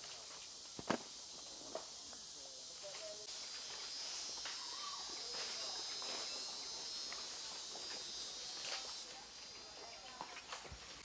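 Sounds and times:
insect chorus: 0:00.0 - 0:11.0
rustling of undergrowth: 0:00.0 - 0:11.0.

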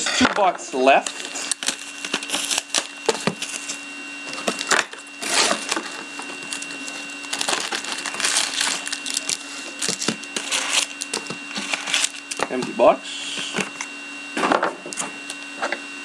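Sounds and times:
foil packs rustling and clicking: 0:00.8 - 0:12.6
plastic wrapping crinkling: 0:01.0 - 0:12.5
cardboard lid opening: 0:01.2 - 0:12.4.

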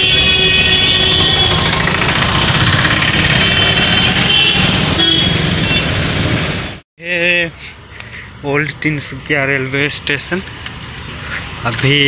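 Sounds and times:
motorcycle engines passing: 0:00.8 - 0:06.5.

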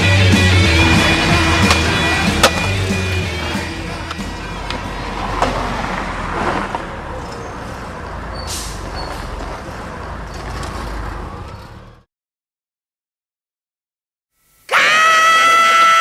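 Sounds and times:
bus engine running: 0:00.0 - 0:12.1
air brakes hissing: 0:08.3 - 0:09.3.

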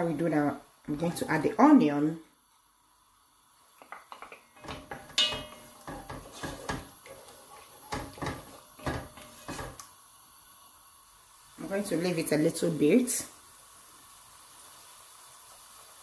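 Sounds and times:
wooden spoon scraping a pot: 0:04.6 - 0:09.8.

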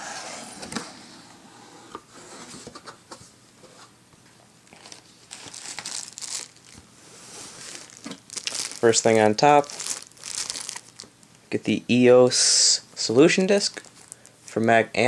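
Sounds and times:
packing crinkling: 0:04.7 - 0:11.4, 0:13.5 - 0:14.4.

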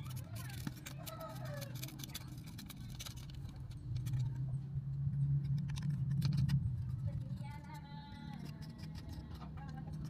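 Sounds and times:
steady low hum: 0:00.0 - 0:10.0
screwdriver clicking on plastic: 0:07.5 - 0:10.0.

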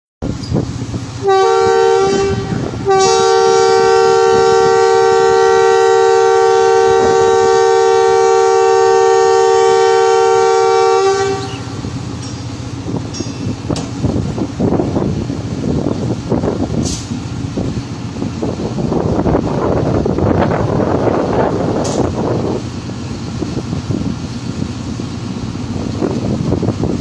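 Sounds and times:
diesel engine rumbling: 0:00.2 - 0:27.0
locomotive two-note horn: 0:01.2 - 0:11.9.

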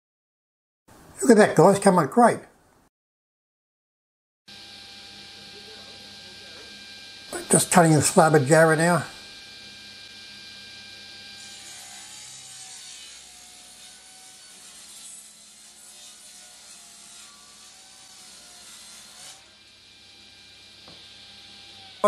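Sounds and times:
table saw cutting wood: 0:04.5 - 0:22.0.

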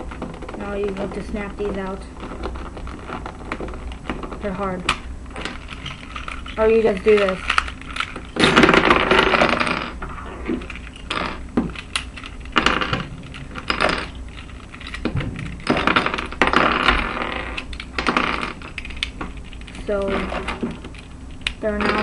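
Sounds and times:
plastic pieces clattering on table: 0:10.6 - 0:22.0.

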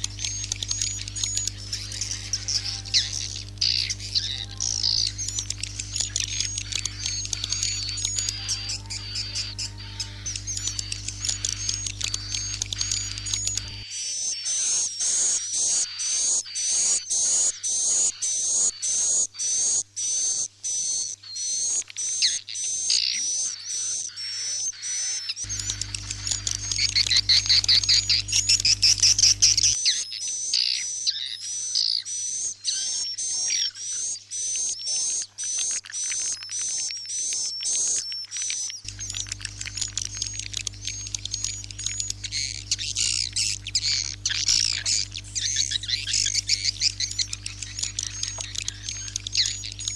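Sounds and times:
low hum: 0:00.0 - 0:13.8, 0:25.5 - 0:29.8, 0:38.9 - 0:49.9.

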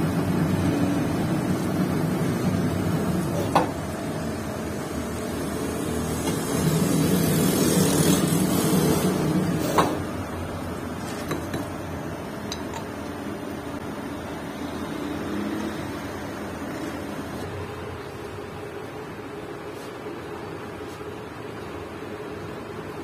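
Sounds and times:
lathe humming: 0:00.1 - 0:17.9.

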